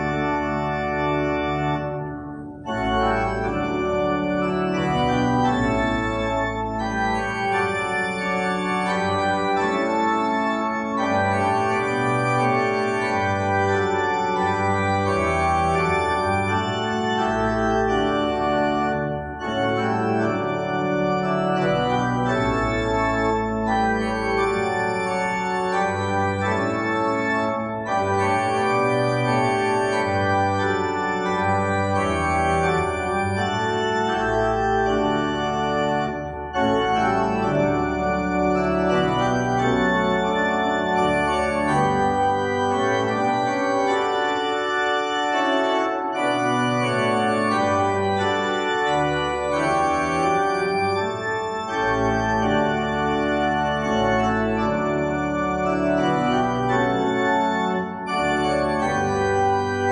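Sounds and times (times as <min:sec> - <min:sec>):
organ playing sustained chords: 0:00.0 - 0:59.9.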